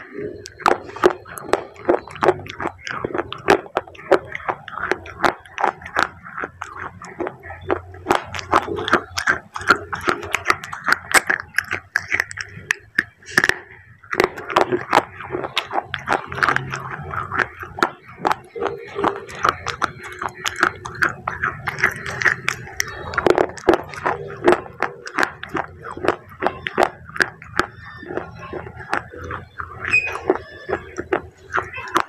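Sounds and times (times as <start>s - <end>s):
crunching and chewing clay: 0.0s - 32.0s
wet mouth sounds: 0.0s - 32.0s.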